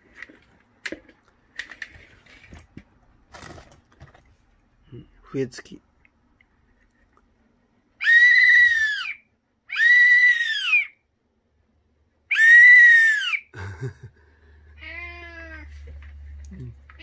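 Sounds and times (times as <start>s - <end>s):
shrill whistle blasts: 8.0s - 11.0s, 12.3s - 13.5s.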